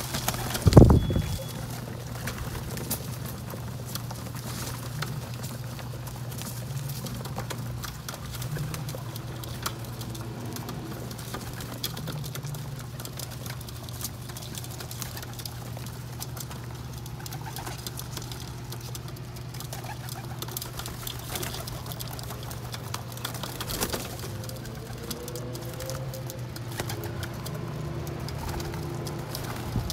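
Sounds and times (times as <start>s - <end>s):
beaks pecking on ledge: 0.0s - 29.9s
pigeon wingbeats: 0.0s - 29.9s
pigeons cooing: 0.0s - 29.9s
shuffling wings: 0.0s - 29.9s.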